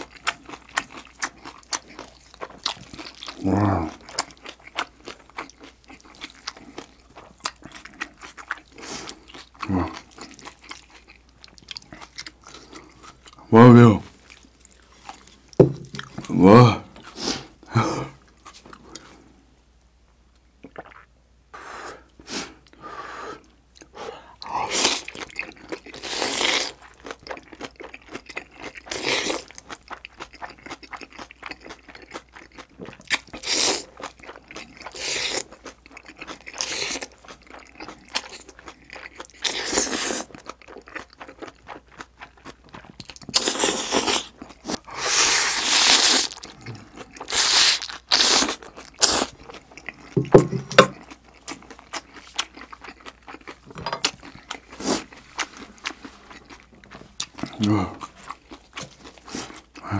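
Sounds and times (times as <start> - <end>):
wet chewing and smacking: 0.0 - 13.5, 14.1 - 16.3, 23.4 - 59.9
noodles slurped: 42.9 - 49.5.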